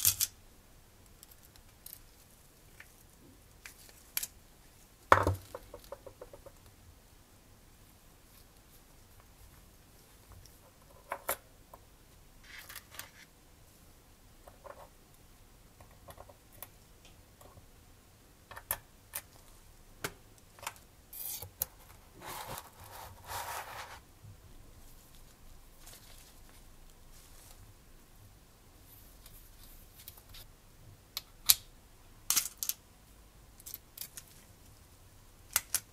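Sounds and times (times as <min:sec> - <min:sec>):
rustling: 0:24.8 - 0:27.8.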